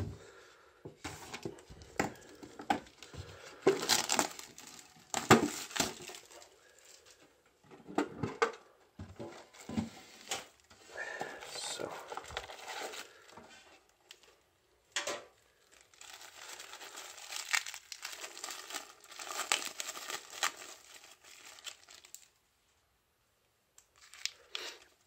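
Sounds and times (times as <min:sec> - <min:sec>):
cellophane crinkling: 0:01.2 - 0:07.2, 0:11.3 - 0:14.4, 0:15.4 - 0:22.4, 0:23.9 - 0:25.0
cellophane ripping: 0:02.2 - 0:07.1, 0:15.5 - 0:22.3, 0:23.9 - 0:25.0.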